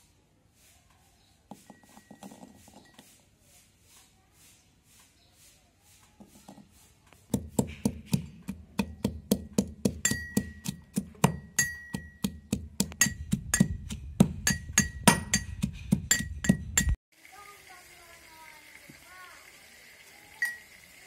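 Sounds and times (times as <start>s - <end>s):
metal pestle pounding in mortar: 7.3s - 17.0s.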